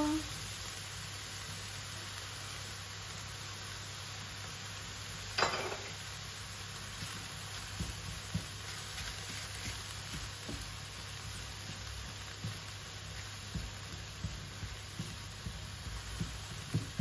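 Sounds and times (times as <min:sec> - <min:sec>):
onion and garlic sizzling in a pan: 0:00.0 - 0:17.0
spatula tapping a pan: 0:06.9 - 0:17.0.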